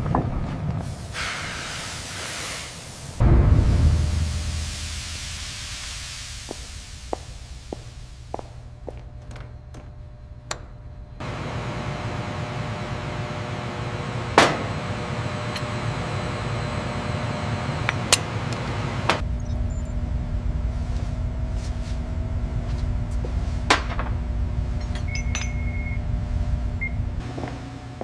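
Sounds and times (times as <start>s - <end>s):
workshop machine hum: 3.0s - 28.0s
high electronic beep: 25.1s - 26.0s.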